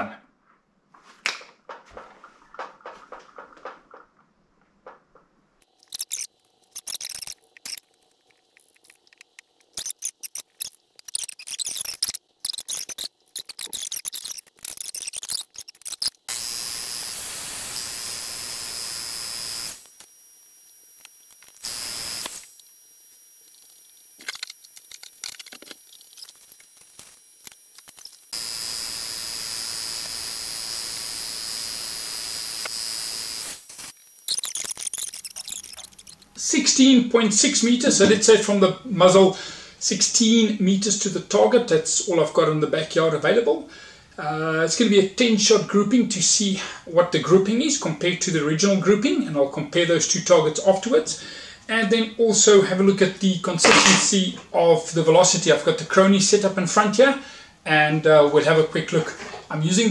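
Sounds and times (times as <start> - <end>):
tools being handled: 5.6 - 16.2, 24.2 - 28.2, 34.3 - 36.4
air compressor hissing and whining: 16.3 - 36.5.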